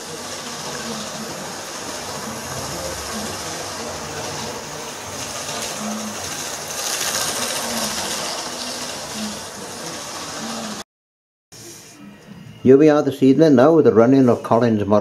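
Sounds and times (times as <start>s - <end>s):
model train running on track: 0.0s - 10.8s.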